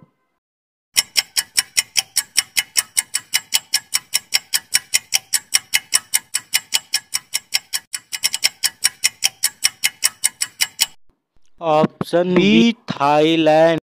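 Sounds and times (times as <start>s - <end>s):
rapid clock ticking: 1.0s - 11.0s.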